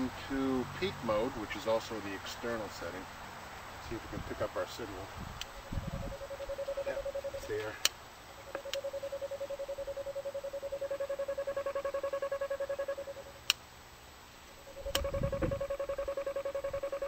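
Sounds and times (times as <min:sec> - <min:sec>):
pulsing signal tone: 0:05.6 - 0:07.6, 0:08.5 - 0:13.4, 0:14.6 - 0:17.0
sharp click: 0:13.4 - 0:13.6.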